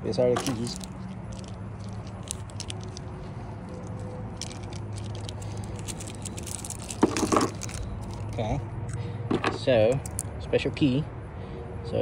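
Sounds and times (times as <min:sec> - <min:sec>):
metal keys jingling: 0:00.3 - 0:08.5, 0:10.0 - 0:10.3
plastic bag crinkling: 0:00.4 - 0:08.4.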